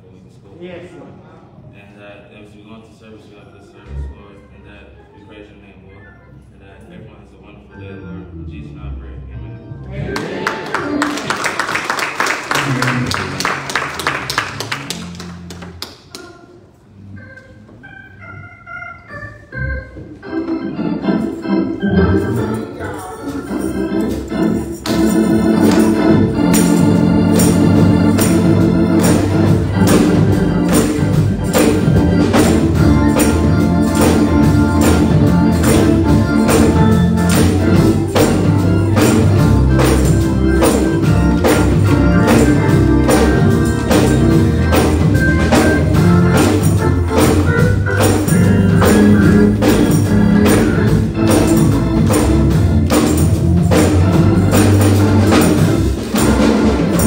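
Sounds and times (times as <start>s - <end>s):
gospel organ music: 1.9s - 57.0s
drums playing steady beat: 24.3s - 57.0s.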